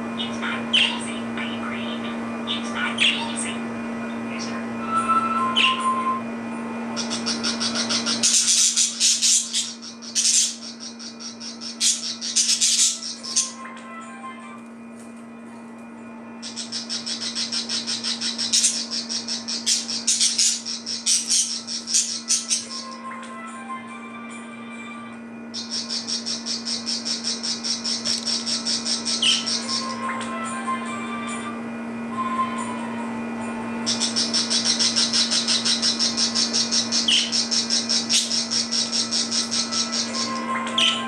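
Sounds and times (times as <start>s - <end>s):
low steady hum: 0.0s - 41.0s
budgerigars chirping: 7.0s - 13.6s, 16.4s - 23.0s, 25.5s - 30.0s, 33.9s - 41.0s.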